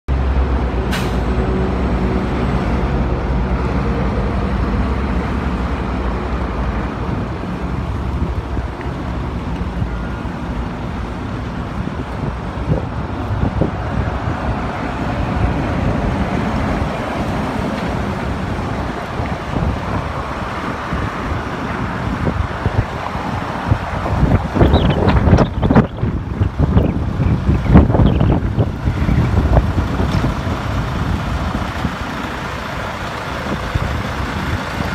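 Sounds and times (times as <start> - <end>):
wind buffeting microphone: 1.8 - 34.9
diesel engine idling: 26.0 - 34.9.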